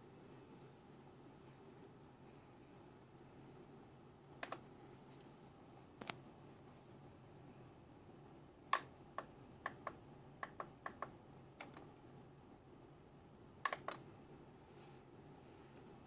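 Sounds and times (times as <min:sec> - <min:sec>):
laptop clicks: 0:04.4 - 0:04.6, 0:08.7 - 0:11.9, 0:13.6 - 0:14.0.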